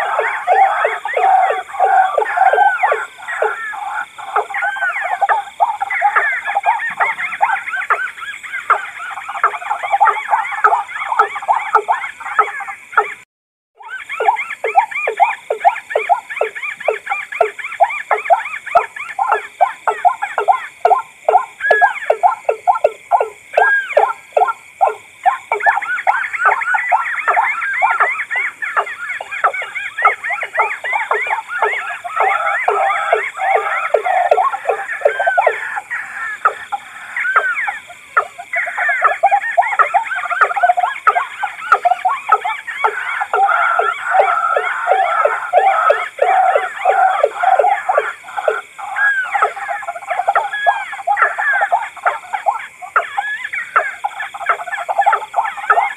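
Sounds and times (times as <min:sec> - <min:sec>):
birds calling repeated notes: 0:00.0 - 0:13.2, 0:13.8 - 0:55.9.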